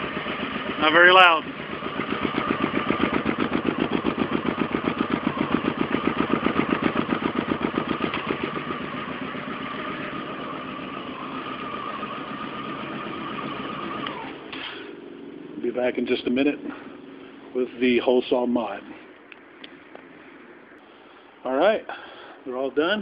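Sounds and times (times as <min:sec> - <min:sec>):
motorcycle engine idling: 0:00.0 - 0:18.4.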